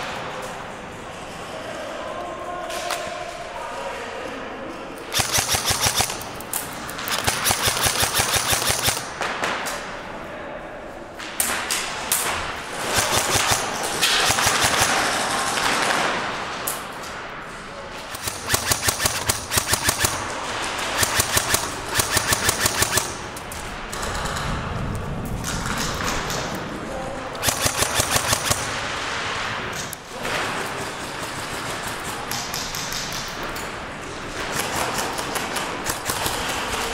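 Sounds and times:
airsoft guns firing bursts: 0:05.1 - 0:09.5, 0:12.8 - 0:16.3, 0:18.1 - 0:23.4, 0:27.4 - 0:29.0, 0:34.5 - 0:36.9.

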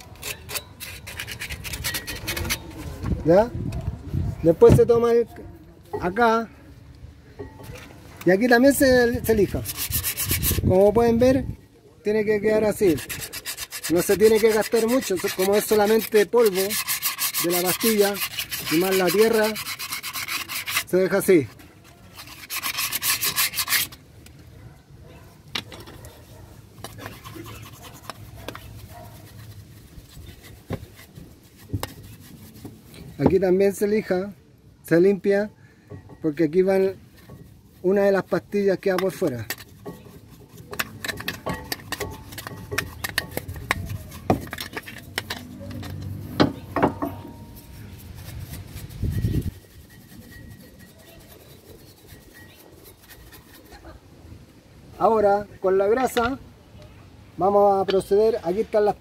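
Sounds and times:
sandpaper scraping metal: 0:00.0 - 0:03.0, 0:08.4 - 0:11.4, 0:12.2 - 0:24.0, 0:26.8 - 0:34.3, 0:36.4 - 0:54.0
brushing dust off metal: 0:00.0 - 0:03.1, 0:08.4 - 0:11.1, 0:12.4 - 0:24.0, 0:26.7 - 0:34.2, 0:36.3 - 0:53.9
faint rubbing: 0:09.1 - 0:11.0, 0:12.6 - 0:24.0, 0:24.6 - 0:33.8, 0:36.2 - 0:54.0.

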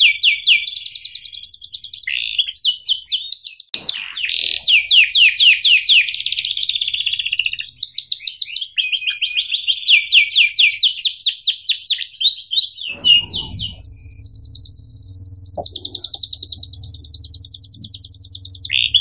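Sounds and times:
canary singing: 0:03.7 - 0:07.8, 0:12.7 - 0:19.0.

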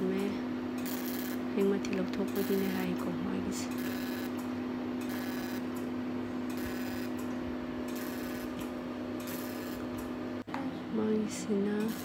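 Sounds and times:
laser machine humming: 0:00.0 - 0:12.0
laser handpiece buzzy crackling bursts: 0:00.8 - 0:01.4, 0:03.7 - 0:04.4, 0:05.0 - 0:05.8, 0:06.5 - 0:07.2, 0:07.9 - 0:08.6, 0:09.2 - 0:09.9, 0:11.8 - 0:12.0.

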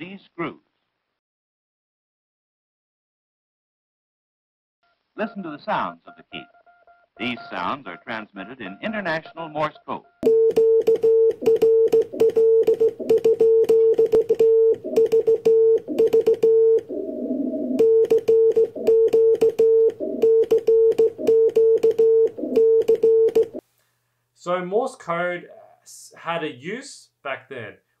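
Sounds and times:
morse code beeps: 0:06.1 - 0:23.6
telegraph key clicks: 0:10.2 - 0:16.9, 0:17.8 - 0:23.6.

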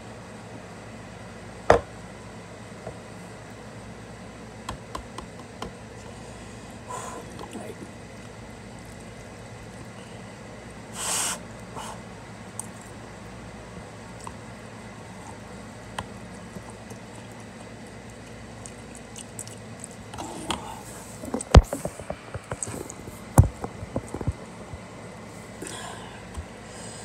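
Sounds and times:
short hiss-like burst: 0:11.0 - 0:11.4.

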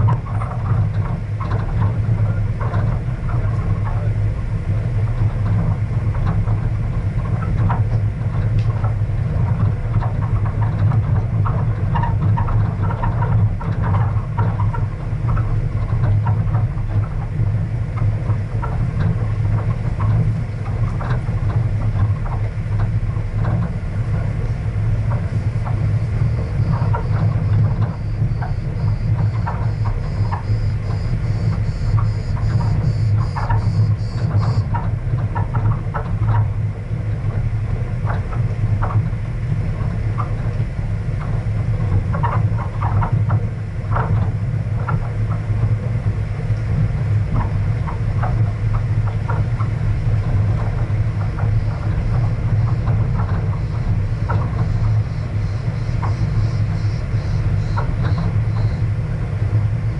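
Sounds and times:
knocks and rattles from rough road: 0:00.0 - 0:59.9
faint rhythmic high-pitched buzz: 0:18.0 - 0:36.4, 0:41.2 - 0:59.9.

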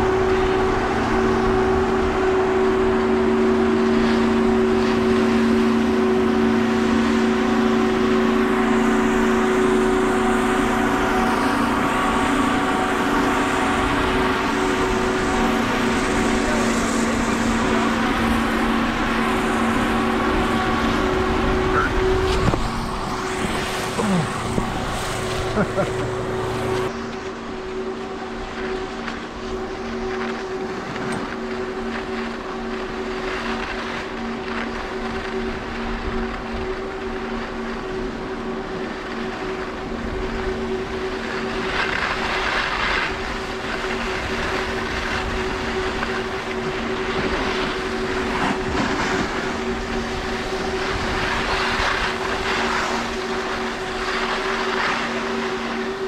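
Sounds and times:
steady low hum: 0:00.0 - 0:56.0
skis scraping over snow: 0:08.4 - 0:56.0
wind noise on microphone: 0:08.5 - 0:25.5.

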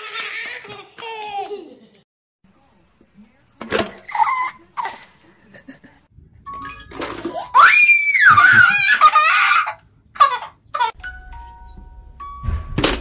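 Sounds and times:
child shrieking and laughing: 0:07.4 - 0:11.0.

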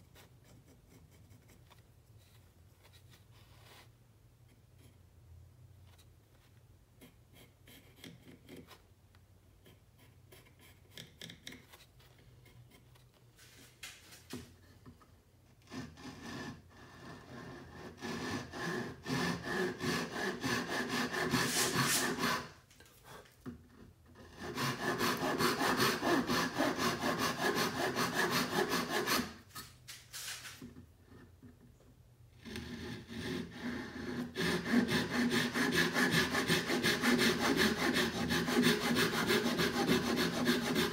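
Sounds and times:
pencil scratching on wood: 0:00.0 - 0:01.8, 0:07.0 - 0:08.9, 0:09.5 - 0:13.2, 0:15.6 - 0:22.5, 0:23.7 - 0:29.7, 0:32.4 - 0:40.9
handsaw cutting wood: 0:15.6 - 0:22.6, 0:24.2 - 0:29.6, 0:32.4 - 0:40.9.

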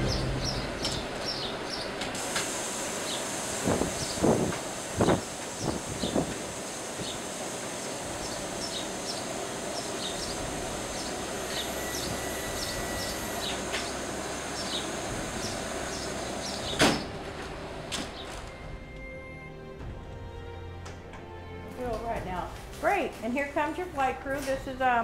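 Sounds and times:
birds chirping: 0:00.0 - 0:02.2, 0:03.0 - 0:04.4, 0:05.0 - 0:07.3, 0:08.2 - 0:19.1
outdoor background noise: 0:00.0 - 0:25.0
loud clunk: 0:16.6 - 0:18.6.

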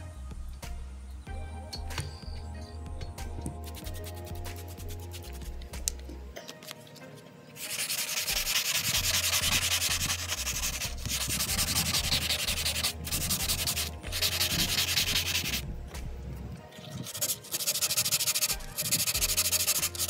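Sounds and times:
sandpaper scratching on plastic: 0:03.6 - 0:05.6, 0:07.6 - 0:15.6, 0:16.8 - 0:20.0.

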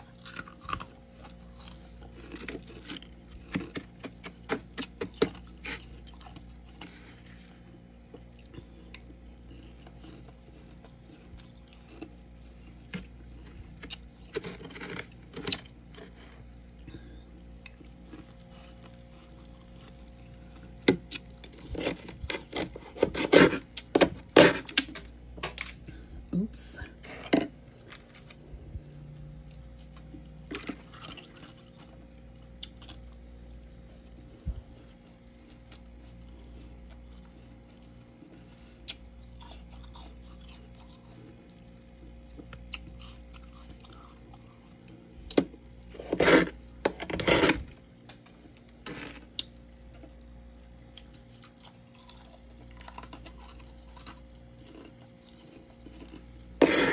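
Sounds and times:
frost crunching as chewed: 0:00.0 - 0:26.3, 0:26.9 - 0:56.9
faint steady hum: 0:00.0 - 0:56.9
frost being scraped: 0:21.6 - 0:23.7, 0:45.9 - 0:47.7, 0:56.6 - 0:56.9.

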